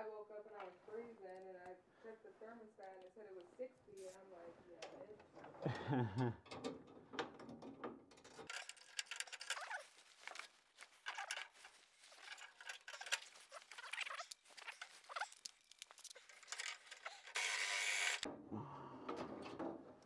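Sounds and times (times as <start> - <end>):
small irregular clicks: 2.8 - 3.5, 4.8 - 18.3
wires rustling and scraping: 6.5 - 18.3
faint squeaks: 8.4 - 17.4.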